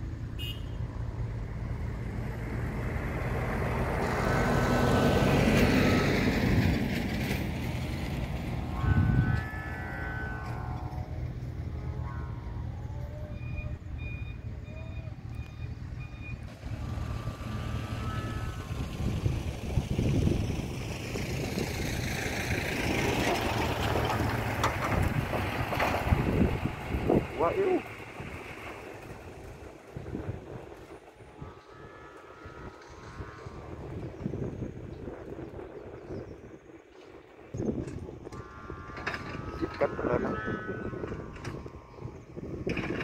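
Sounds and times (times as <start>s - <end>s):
wind buffeting microphone: 1.7s - 14.4s, 15.0s - 43.0s
steady low rumble: 7.3s - 22.4s, 28.2s - 42.8s.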